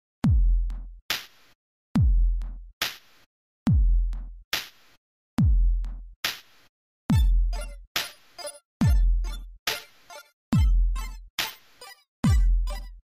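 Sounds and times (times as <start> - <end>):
electronic drum machine beat: 7.1 - 13.0.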